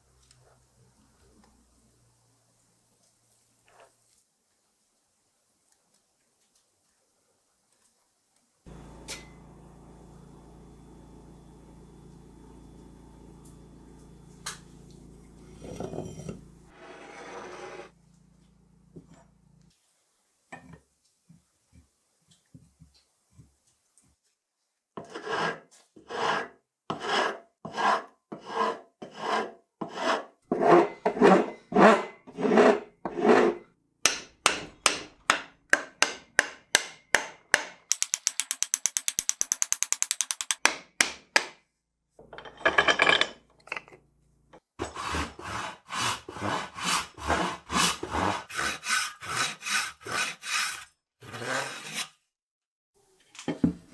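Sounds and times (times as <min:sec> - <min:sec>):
hand tool strokes on wood: 0:15.3 - 0:18.0, 0:44.8 - 0:52.2
hand saw cutting wood: 0:25.0 - 0:33.6, 0:44.8 - 0:52.2.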